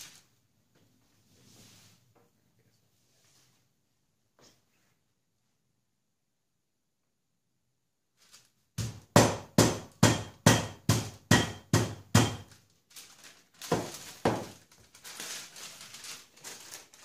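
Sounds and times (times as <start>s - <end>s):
baking paper rustling: 0.0s - 0.4s, 8.2s - 8.8s, 12.4s - 17.0s
meat pounder thudding: 8.8s - 12.5s.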